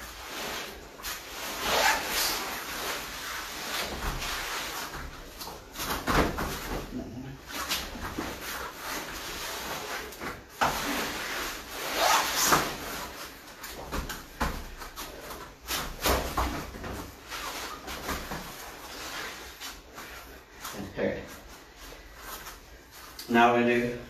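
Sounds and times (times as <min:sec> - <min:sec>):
fabric rustling: 0:00.0 - 0:23.2
bodies thumping on foam mats: 0:01.2 - 0:19.4.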